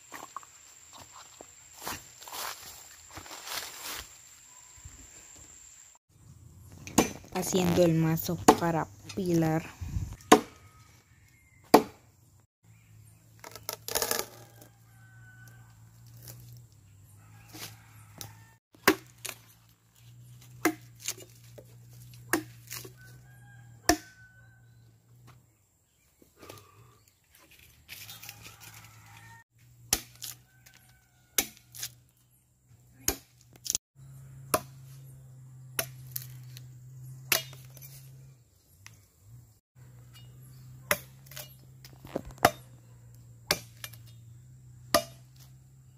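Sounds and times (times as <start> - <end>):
machete chopping wood: 6.8 - 7.8, 8.4 - 8.7, 10.2 - 10.6, 11.7 - 12.0, 18.2 - 19.4, 20.5 - 21.6, 22.2 - 23.0, 23.8 - 24.2, 29.8 - 30.4, 31.3 - 32.0, 33.0 - 33.8, 34.5 - 35.0, 35.8 - 36.4, 37.3 - 37.8, 40.8 - 42.8, 43.4 - 44.0, 44.8 - 45.5.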